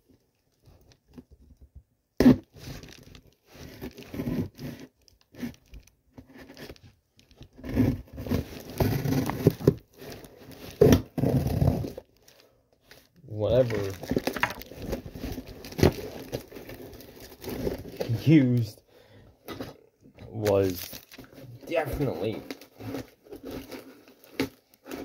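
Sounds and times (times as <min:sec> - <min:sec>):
cardboard box scraping and tearing: 0:02.2 - 0:06.8, 0:07.5 - 0:12.1, 0:13.5 - 0:18.6, 0:20.6 - 0:25.0.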